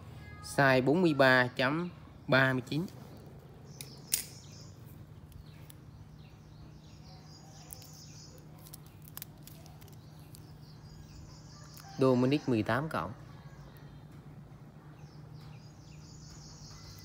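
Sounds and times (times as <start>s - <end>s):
faint high chirping: 2.8s - 12.6s, 13.2s - 17.0s.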